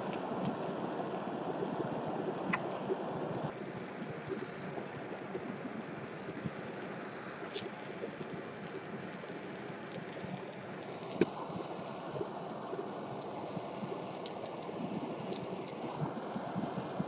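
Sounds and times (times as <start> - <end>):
burning plastic crackling: 0.0 - 3.5, 7.4 - 17.0.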